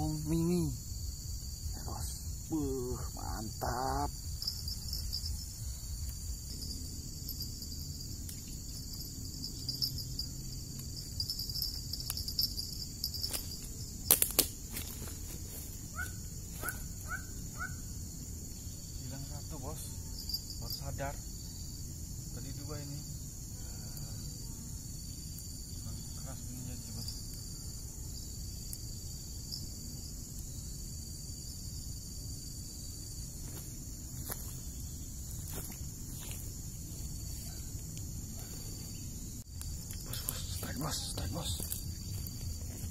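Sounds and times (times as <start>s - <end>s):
insects chirping: 0.0s - 42.9s
footsteps rustling through grass: 14.5s - 16.9s, 33.4s - 37.5s, 41.4s - 42.9s.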